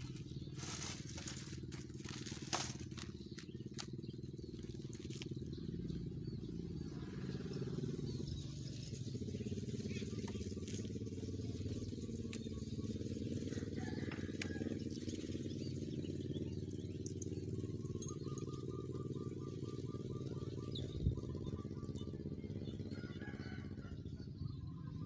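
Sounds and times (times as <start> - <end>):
engine running steadily: 0.0 - 25.0.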